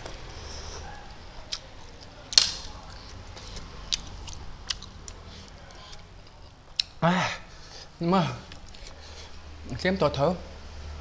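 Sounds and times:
man chewing noodles: 2.8 - 7.0.

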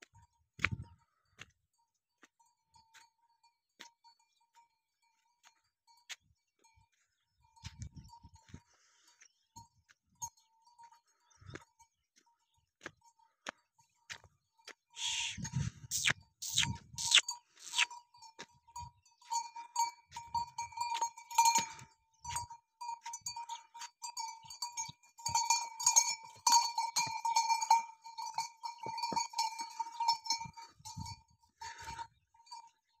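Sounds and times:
camel neck bell clanking: 0.0 - 8.8, 9.4 - 33.0.

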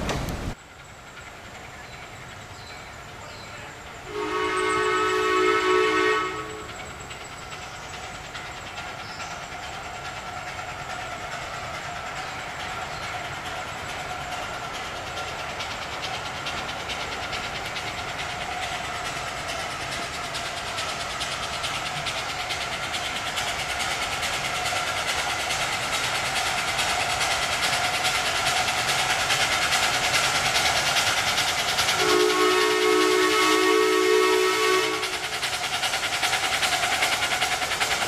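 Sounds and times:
rail noise: 0.0 - 38.0
steam locomotive running: 0.0 - 38.0
steam whistle blast: 4.1 - 6.8, 32.0 - 35.2.

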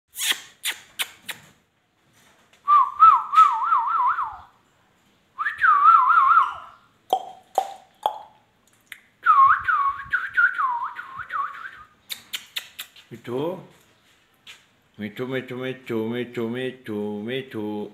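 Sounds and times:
sharp clicks: 12.1 - 13.1.

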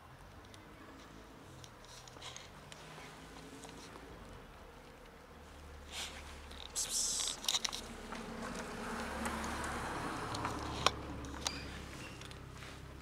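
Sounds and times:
cats crunching dry kibble: 6.0 - 11.5.

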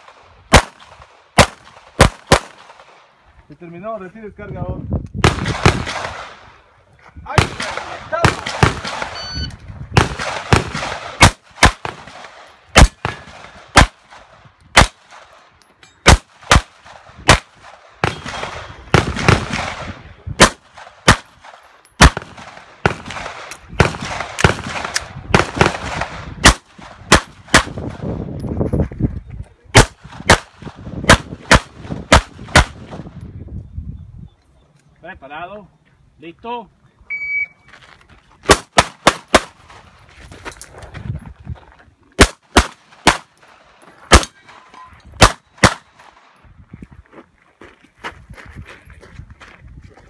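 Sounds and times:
pistol shots echoing: 0.0 - 3.0, 7.4 - 9.2, 10.0 - 15.4, 16.0 - 28.0, 42.2 - 43.4, 44.1 - 46.2.

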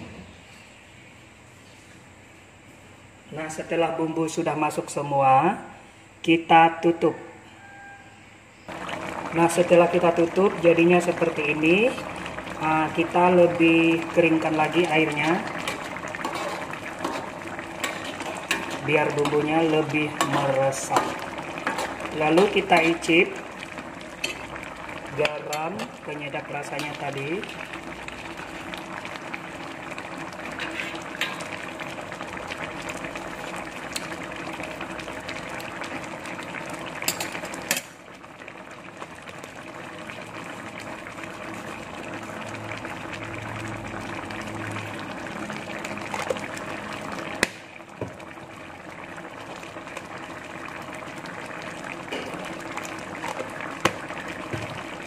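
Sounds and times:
stew bubbling in a wok: 8.6 - 55.0.

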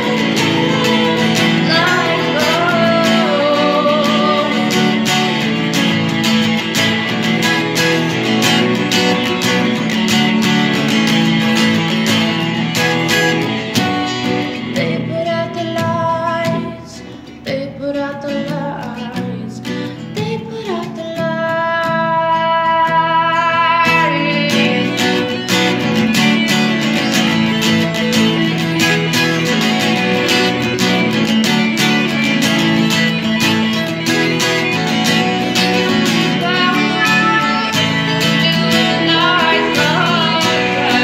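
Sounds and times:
woman singing: 0.0 - 5.6, 14.6 - 26.7, 35.6 - 41.0
acoustic guitar strumming: 0.0 - 41.0.

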